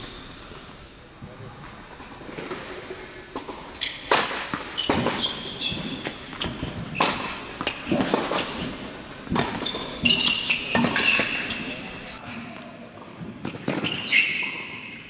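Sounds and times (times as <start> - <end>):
sneakers squeaking on court: 0.0 - 0.8, 3.3 - 12.2
tennis ball bouncing: 1.9 - 12.2
tennis racket hitting ball: 2.3 - 12.2.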